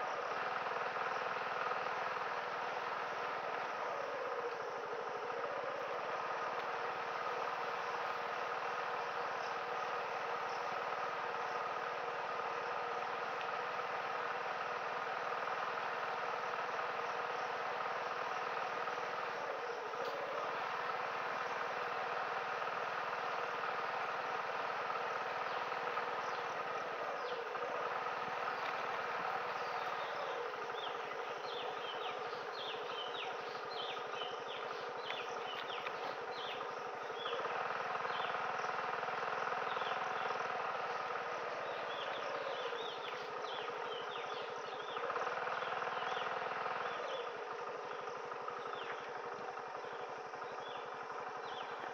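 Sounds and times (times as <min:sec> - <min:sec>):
moped engine running: 0:00.0 - 0:51.9.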